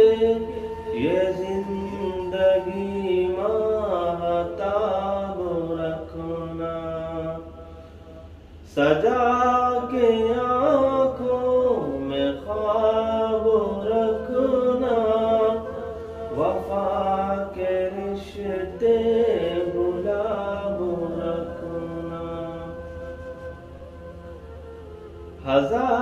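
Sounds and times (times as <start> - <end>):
man singing: 0.0 - 7.7, 8.7 - 23.5, 25.4 - 26.0.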